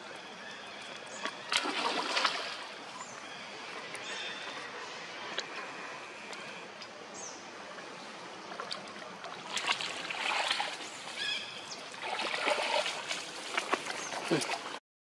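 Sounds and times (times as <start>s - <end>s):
water splashing and sloshing: 0.0s - 14.8s.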